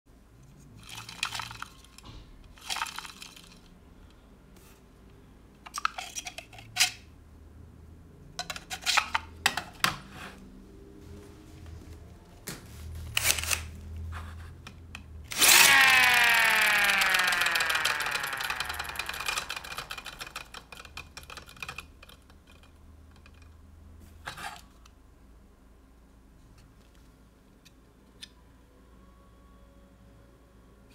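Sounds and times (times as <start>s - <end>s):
plastic parts clicking and rattling: 0.4s - 4.2s, 5.6s - 7.1s, 8.3s - 10.0s, 14.6s - 23.6s
miniature siren rotor clicking: 15.3s - 21.9s.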